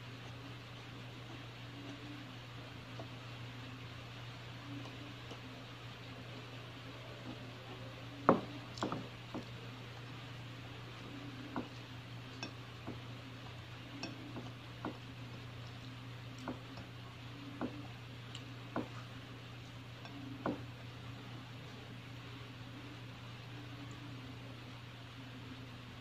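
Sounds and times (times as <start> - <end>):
fingers mixing food on a plate: 0.0 - 22.1
steady low hum: 0.0 - 26.0
light clicks and taps on plate: 11.0 - 17.0.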